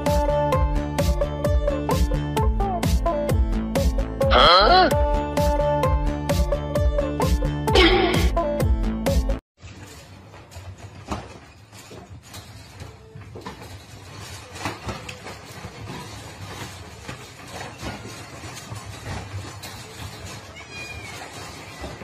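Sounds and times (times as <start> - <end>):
cats scuffling: 9.6 - 22.0
wire crate rattling: 9.6 - 22.0.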